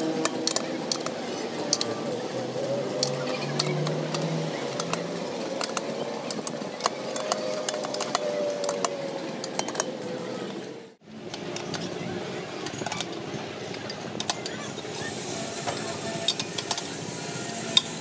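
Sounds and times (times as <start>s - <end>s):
socket wrench metallic clicks: 0.2s - 1.1s, 13.8s - 14.6s.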